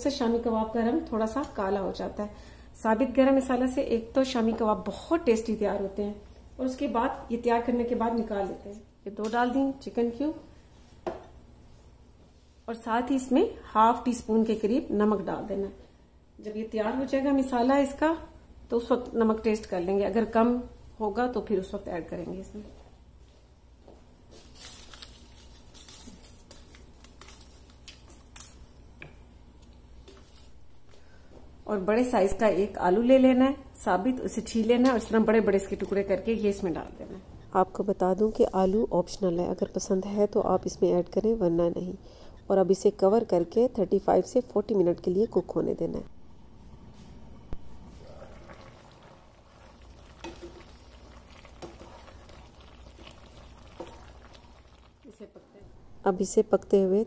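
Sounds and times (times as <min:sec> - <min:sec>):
water sloshing in pot: 0:48.2 - 0:55.1.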